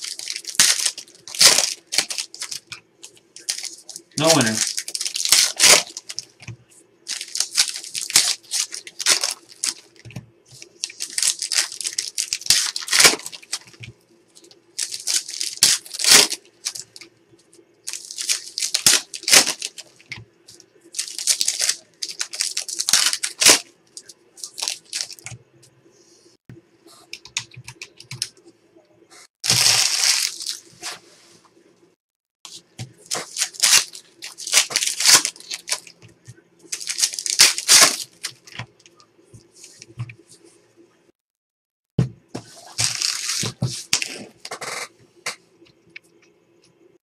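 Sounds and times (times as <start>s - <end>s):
wrappers tearing and crinkling: 0.0s - 6.3s, 7.1s - 17.1s, 17.9s - 20.2s, 21.0s - 25.3s, 29.4s - 31.0s, 33.0s - 36.0s, 36.7s - 38.6s, 42.6s - 44.6s
faint steady hum: 0.0s - 41.1s.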